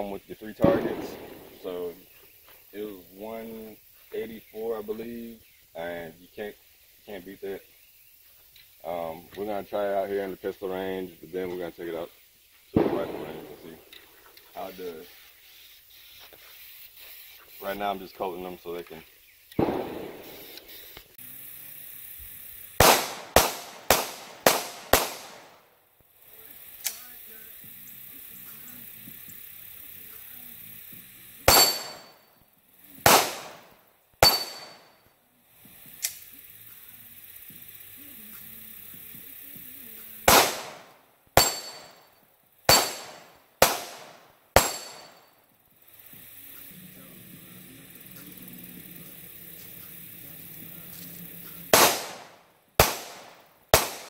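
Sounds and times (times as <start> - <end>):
pistol shots: 0.6 - 1.8, 12.8 - 13.8, 19.6 - 20.7, 22.8 - 25.7, 31.4 - 32.2, 33.0 - 34.9, 40.2 - 42.0, 42.7 - 45.2, 51.7 - 54.0
bullet ringing on steel plate: 31.5 - 32.3, 34.2 - 35.0, 41.4 - 43.9, 44.6 - 45.4.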